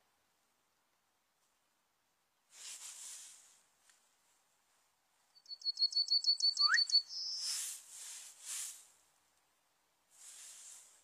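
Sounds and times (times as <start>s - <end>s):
bird singing: 5.3s - 7.5s.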